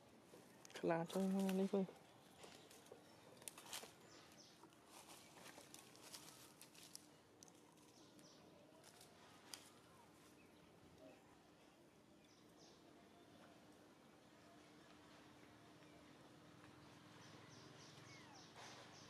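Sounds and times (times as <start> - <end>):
faint low hum: 0.0 - 19.0
faint scattered clicks: 5.4 - 9.9.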